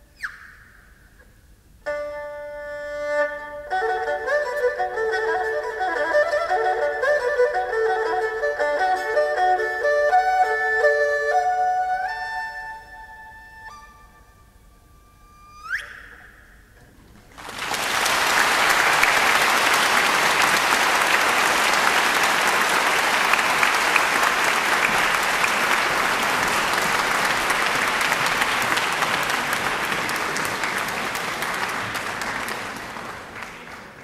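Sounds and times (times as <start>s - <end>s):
high erhu note: 1.8s - 16.8s
audience applauding: 17.3s - 34.0s.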